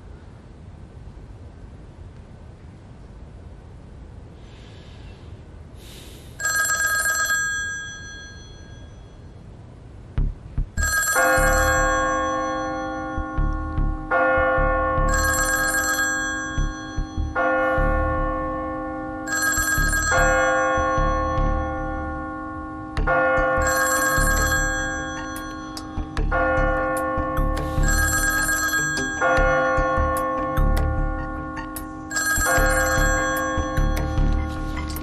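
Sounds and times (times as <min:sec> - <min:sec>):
telephone bell ringing: 0:06.4 - 0:09.4, 0:10.8 - 0:13.4, 0:15.1 - 0:17.2, 0:19.2 - 0:22.1, 0:23.6 - 0:26.1, 0:27.7 - 0:30.0, 0:32.0 - 0:34.2
tense background music: 0:10.2 - 0:35.0.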